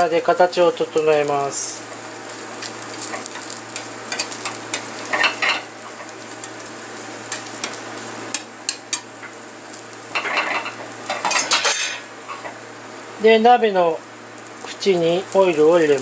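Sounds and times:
omelette sizzling in frying pan: 0.0s - 16.0s
turner scraping and tapping pan: 2.6s - 9.4s, 10.1s - 12.6s.

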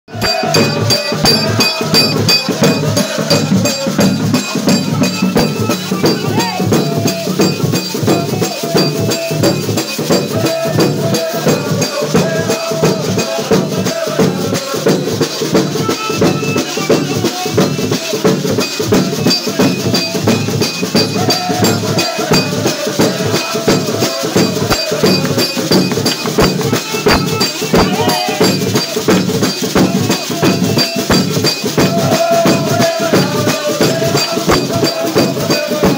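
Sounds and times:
group singing a hymn: 0.1s - 35.9s
rhythmic hand-clapping: 0.1s - 35.9s.

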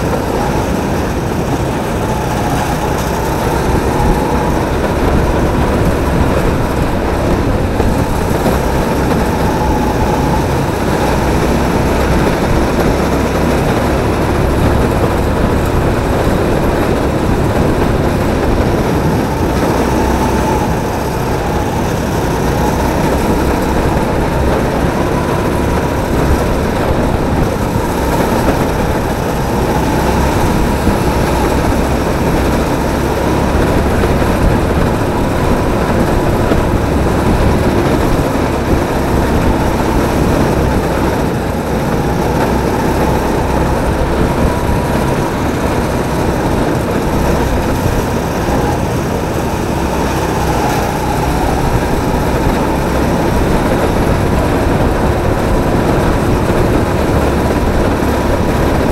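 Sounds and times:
kart engine running: 0.0s - 58.9s
thin steady whine: 0.0s - 58.9s.

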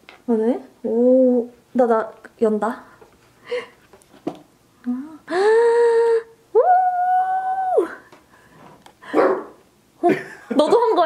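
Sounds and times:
excited rising cries: 6.6s - 8.0s.

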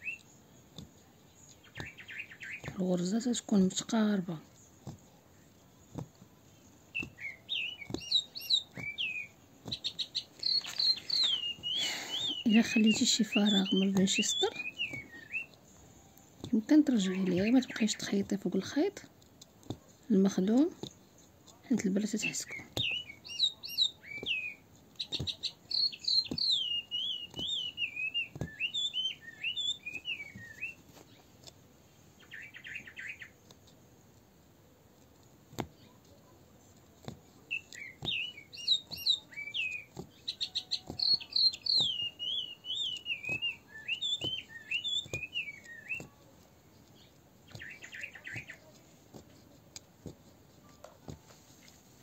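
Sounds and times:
buzzy bird trill: 0.0s - 0.3s, 6.9s - 15.6s, 21.9s - 30.8s, 32.2s - 33.4s, 37.5s - 46.3s, 46.9s - 48.8s
songbird warbling: 7.0s - 15.6s, 22.0s - 30.8s, 32.2s - 33.3s, 37.5s - 46.1s, 47.5s - 48.7s.

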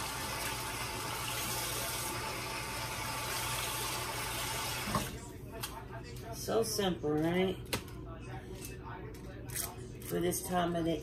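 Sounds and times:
kitchen tap running: 0.0s - 5.2s.

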